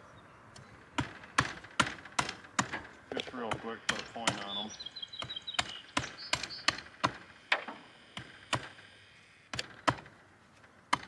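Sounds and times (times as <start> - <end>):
machete chopping into wood: 1.0 - 4.5, 9.5 - 10.1.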